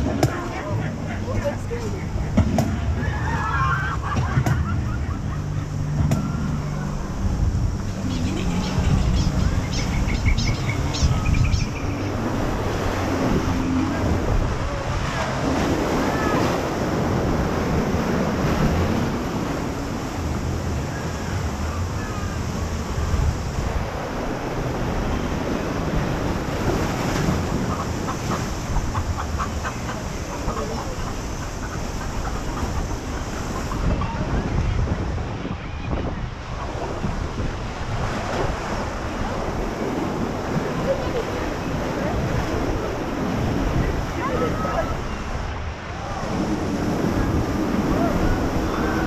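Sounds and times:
steady low rumble: 0.0s - 38.0s
white water rushing and splashing: 0.0s - 49.0s.

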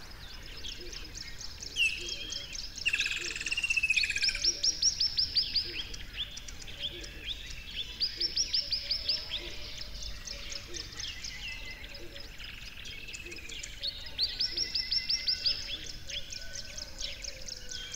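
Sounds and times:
songbirds chirping: 0.0s - 17.9s.

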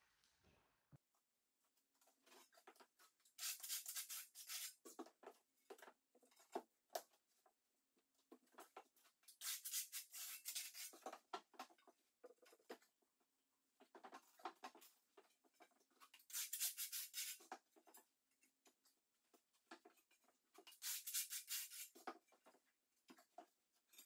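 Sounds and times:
tiles scraping on mortar: 2.2s - 5.1s, 9.3s - 11.3s, 16.1s - 17.6s, 20.6s - 22.2s.

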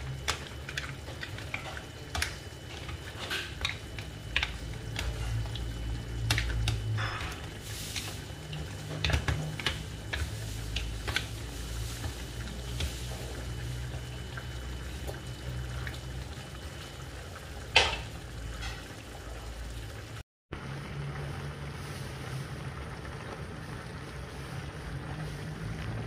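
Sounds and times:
food simmering in a pan: 0.0s - 26.0s
steady low hum: 0.0s - 26.0s
shells and spatula clacking on pan: 0.2s - 5.4s.

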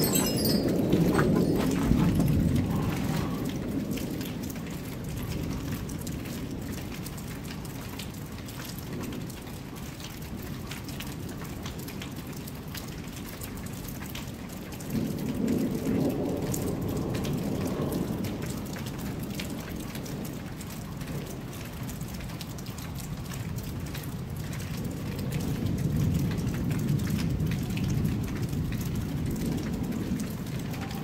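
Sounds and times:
steady rain falling: 0.0s - 31.0s
low rumble of thunder: 14.6s - 22.2s, 23.2s - 31.0s.

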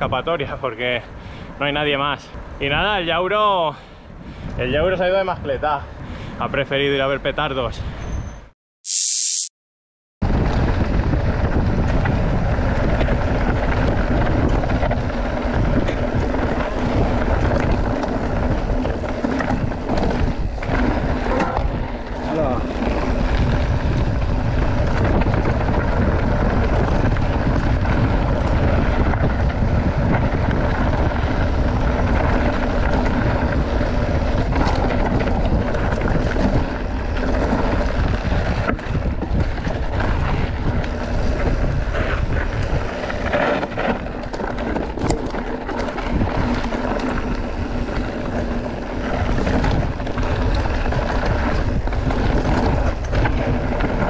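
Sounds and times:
bike tyres hissing on trail: 8.9s - 9.5s, 40.0s - 44.8s, 45.8s - 54.0s
wind rushing over microphone: 10.2s - 54.0s.

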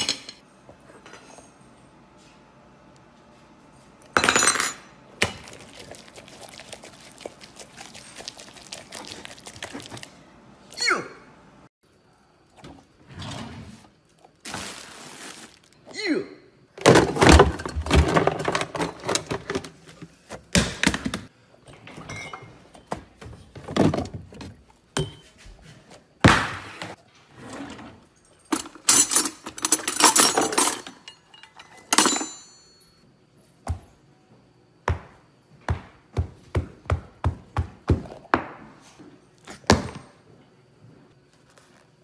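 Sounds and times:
cutlery rattling in a drawer: 28.4s - 32.5s
ringing metal clink: 30.1s - 33.0s.

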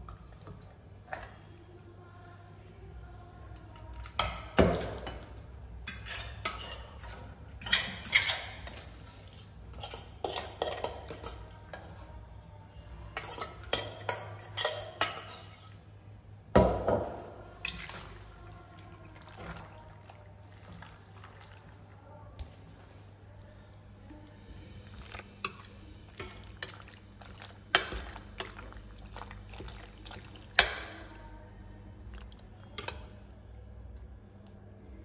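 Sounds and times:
metal spoon scraping steel pans: 5.9s - 11.4s.

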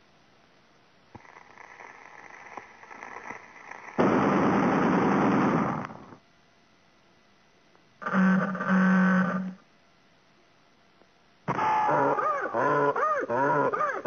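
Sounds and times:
soft crackling with clicks: 1.1s - 4.8s
loud harsh blast: 4.0s - 6.2s.

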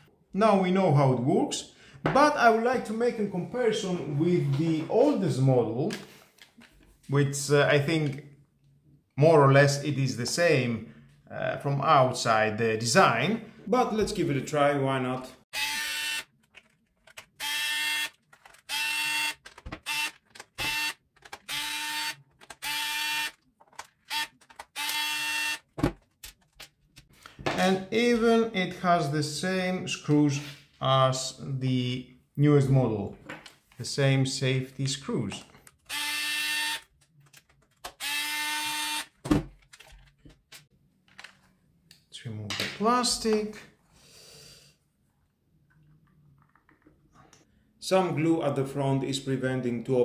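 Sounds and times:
electric screwdriver whining: 15.6s - 16.3s, 17.4s - 23.4s, 24.1s - 25.7s, 35.9s - 36.9s, 37.9s - 39.2s.

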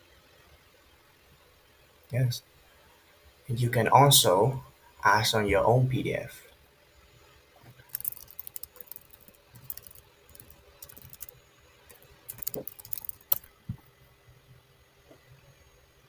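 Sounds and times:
computer keyboard key clicks: 7.9s - 11.3s, 11.9s - 13.5s.

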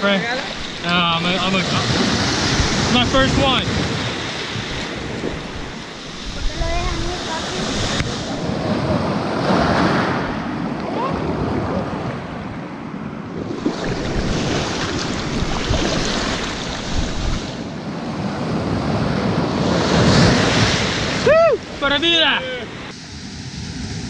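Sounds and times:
wind buffeting microphone: 0.0s - 12.4s, 13.3s - 17.8s
surf waves breaking: 0.0s - 24.0s.

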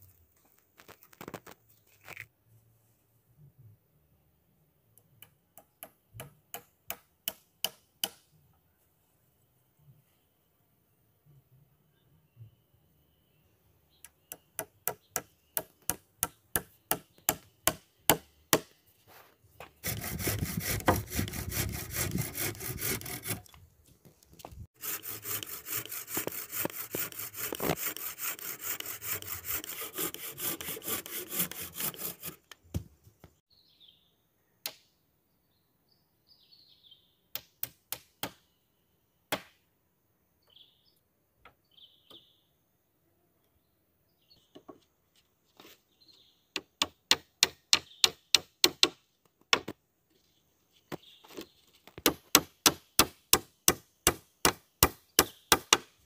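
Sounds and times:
faint bird chirps: 9.8s - 15.6s
hand saw cutting wood: 19.8s - 23.5s, 24.8s - 32.6s.

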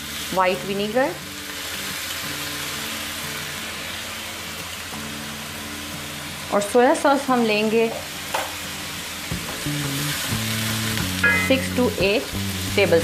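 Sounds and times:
vegetables sizzling in a pan: 0.0s - 13.0s
background music: 9.0s - 13.0s.

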